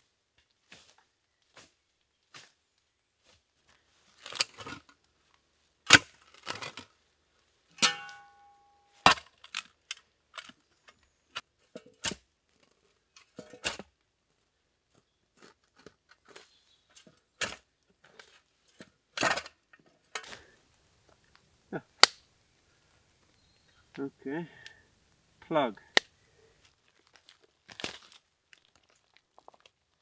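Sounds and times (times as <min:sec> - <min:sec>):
hoe strike ringing: 0:07.8 - 0:09.0.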